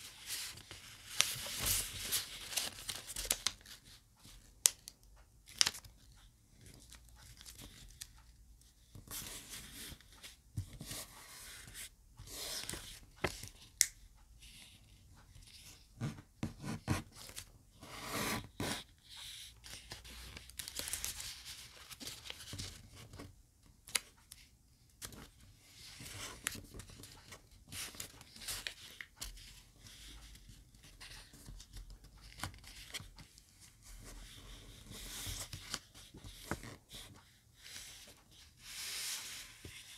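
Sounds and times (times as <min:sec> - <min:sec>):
paper rustling and crinkling: 0:00.1 - 0:04.0, 0:19.7 - 0:23.3.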